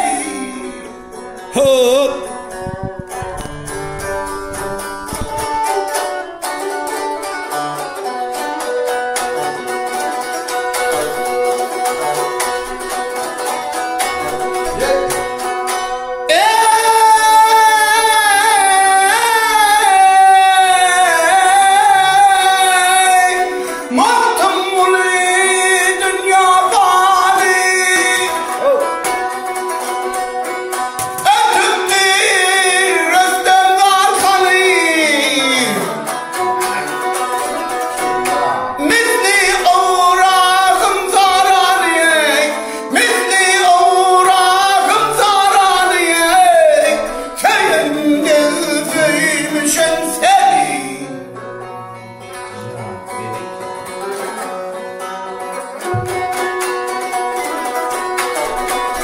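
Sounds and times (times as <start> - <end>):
lute strummed rapidly: 0.0 - 59.0
man singing: 0.0 - 59.0.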